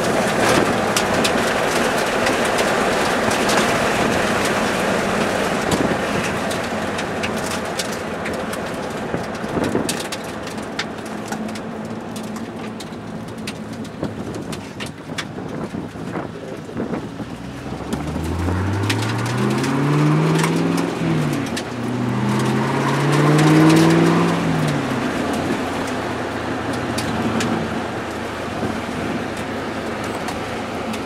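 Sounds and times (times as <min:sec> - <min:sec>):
road and wind noise: 0:00.0 - 0:31.0
car engine accelerating: 0:15.5 - 0:31.0.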